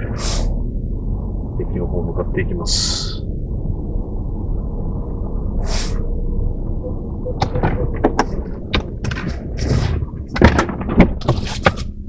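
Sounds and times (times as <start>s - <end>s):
car engine and road rumble: 0.0s - 12.0s
sharp clicks and knocks: 7.4s - 12.0s.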